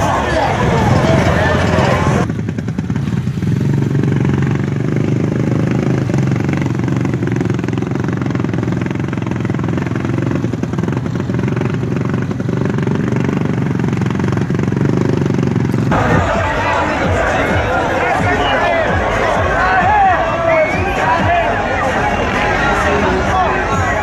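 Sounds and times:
atv engine running: 0.0 - 24.0.

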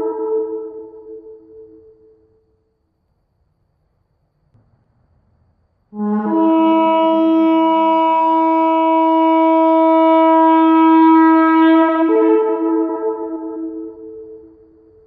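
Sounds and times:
shofar blast: 0.0 - 1.8, 6.0 - 14.6.

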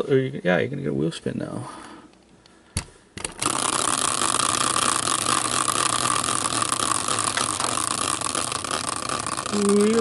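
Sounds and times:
wheel spinning with whirring: 3.2 - 10.0.

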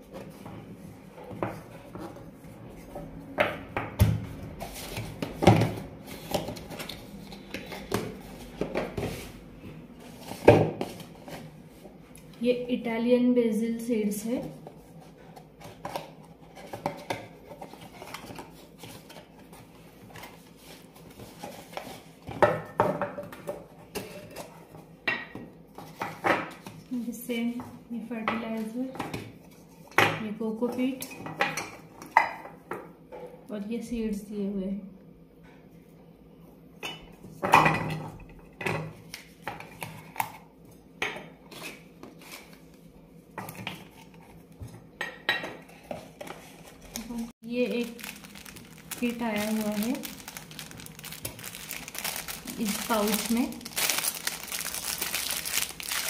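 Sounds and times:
paperboard box rustling: 47.8 - 56.0.

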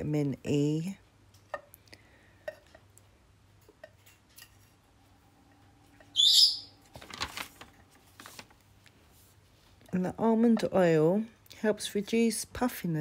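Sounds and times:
high-pitched warbling chirp: 6.1 - 6.8.

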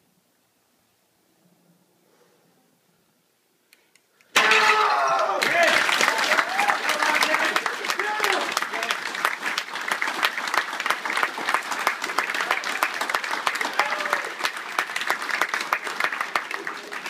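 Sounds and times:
audience applauding: 4.4 - 17.0.

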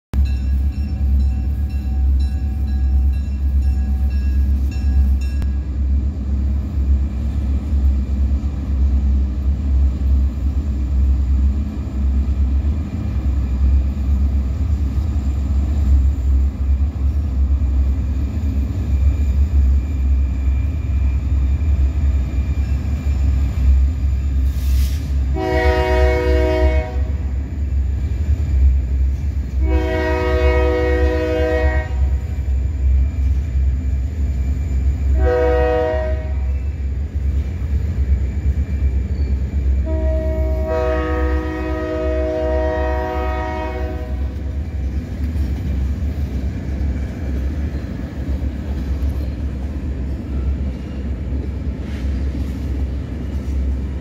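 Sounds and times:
freight train rumbling past: 0.1 - 54.0
locomotive horn blasts: 25.3 - 27.3, 29.6 - 32.2, 35.1 - 36.7, 39.8 - 44.4.

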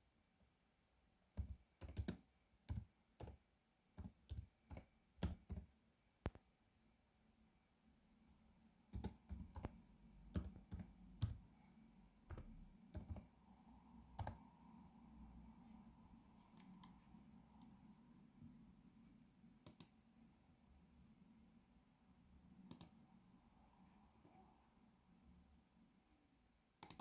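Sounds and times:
computer keyboard keystrokes: 1.4 - 3.4, 4.0 - 5.7, 9.0 - 9.7, 10.3 - 11.4, 12.3 - 13.3, 14.2 - 14.4.

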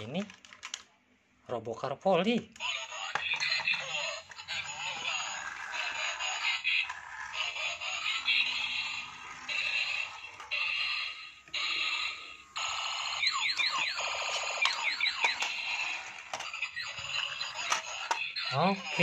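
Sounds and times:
falling electronic toy siren tones: 8.3 - 18.6
toy high beeping bursts: 10.6 - 19.0.

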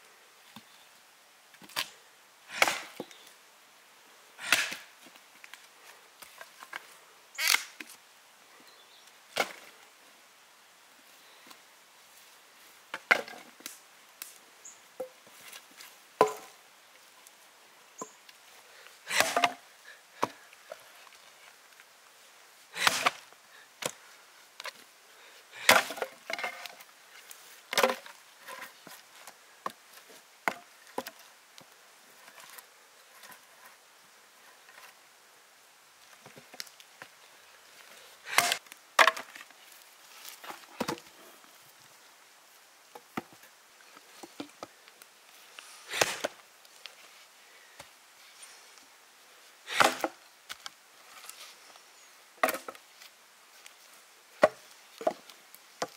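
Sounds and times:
chopping strikes: 2.6 - 3.0, 19.1 - 19.6.

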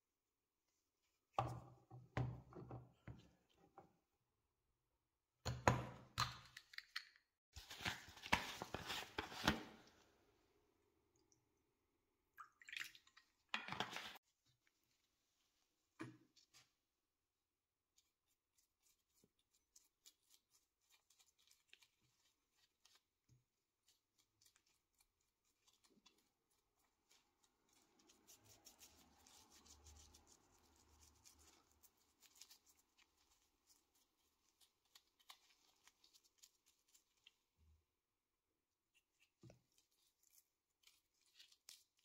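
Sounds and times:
paintbrush scratching and ticking: 17.9 - 37.5.

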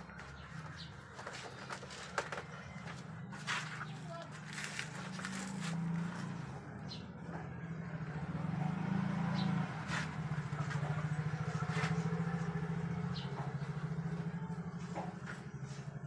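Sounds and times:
motorcycle engine idling: 5.2 - 16.0.

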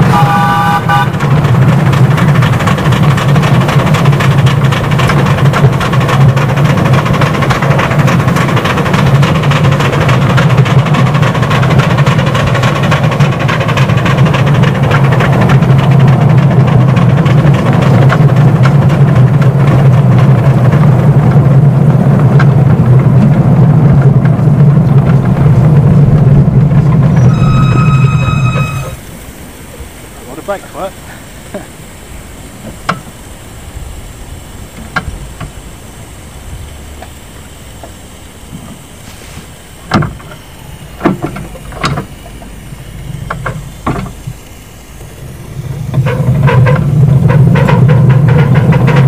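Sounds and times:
high steam whistle blast: 0.0 - 1.2, 27.1 - 31.4
steam locomotive running: 0.0 - 49.0
low rumble: 14.0 - 39.0.

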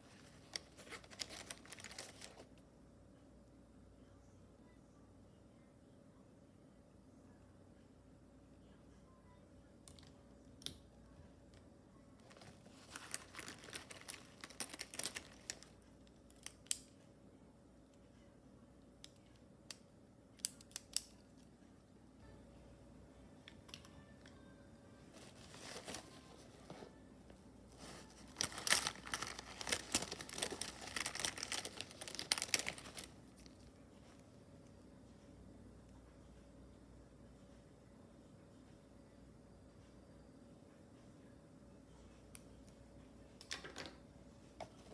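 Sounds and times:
plastic pens clicking and rattling: 12.9 - 16.9, 28.3 - 33.5.

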